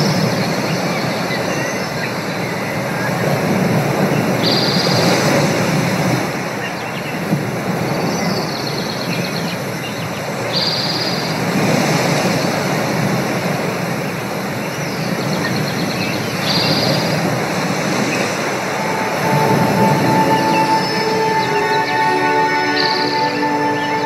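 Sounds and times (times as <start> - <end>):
surf rushing: 0.0 - 24.0
wind: 0.0 - 24.0
held musical note: 17.7 - 24.0
high bird-like call: 17.9 - 24.0.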